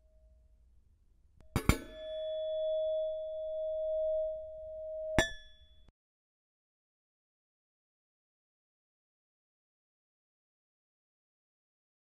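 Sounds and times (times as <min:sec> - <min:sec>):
metal kettle clinking and ringing: 0:01.5 - 0:02.8, 0:05.1 - 0:05.6.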